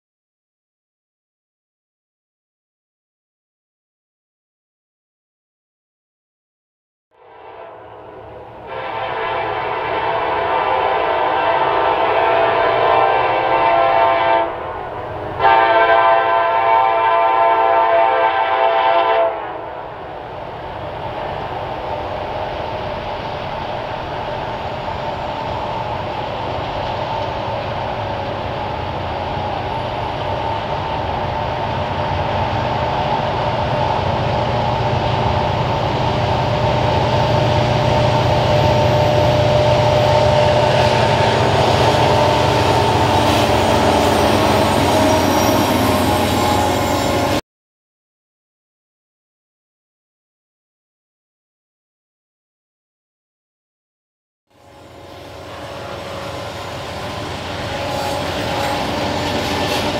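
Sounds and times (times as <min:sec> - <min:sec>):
locomotive horn chord: 0:07.1 - 0:19.8, 0:36.5 - 0:47.4, 0:54.5 - 0:59.9
train wheels on rails: 0:19.5 - 0:47.4, 0:54.6 - 0:59.9.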